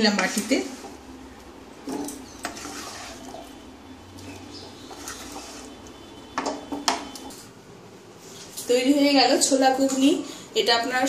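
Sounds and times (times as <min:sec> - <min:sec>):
wooden spatula scraping a pan: 0:01.9 - 0:03.6, 0:04.2 - 0:07.4.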